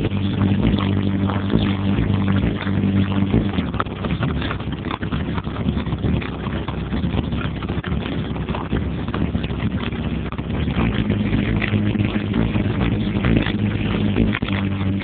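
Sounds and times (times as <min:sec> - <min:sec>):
low bass rumble: 0:00.0 - 0:15.0
objects rattling on subwoofer: 0:00.0 - 0:15.0.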